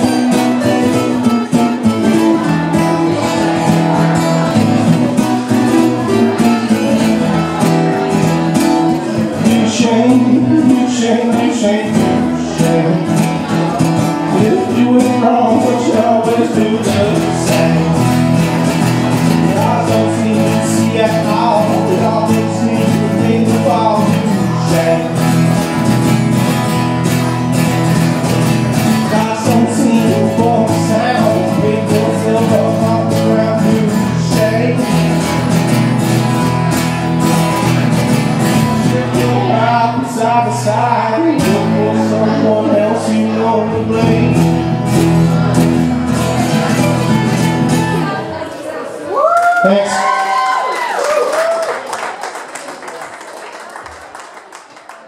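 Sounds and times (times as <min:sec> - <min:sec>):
bass guitar: 0:00.0 - 0:48.5
acoustic guitars strummed: 0:00.0 - 0:48.7.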